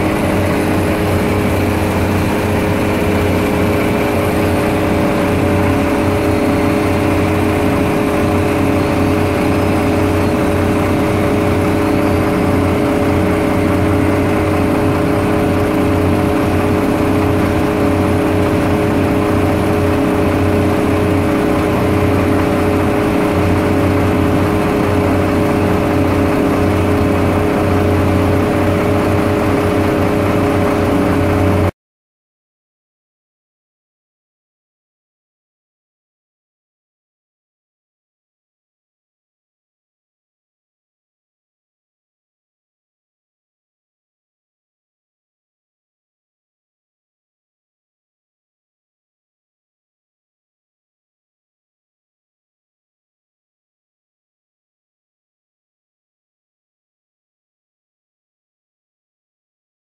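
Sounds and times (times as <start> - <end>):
heavy diesel engines running: 0.0 - 31.7.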